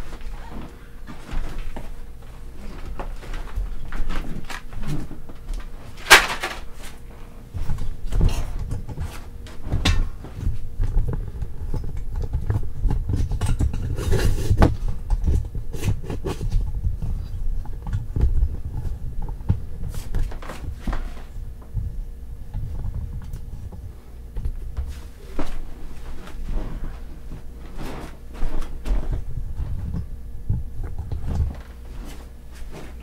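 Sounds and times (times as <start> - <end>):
objects knocking and clattering: 7.6 - 23.8.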